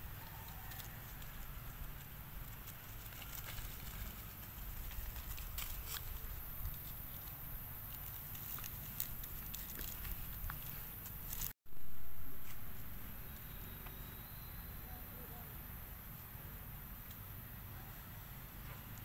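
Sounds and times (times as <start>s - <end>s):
dry leaves crackling and rustling: 0.0s - 11.6s
low steady rumble: 0.0s - 19.0s.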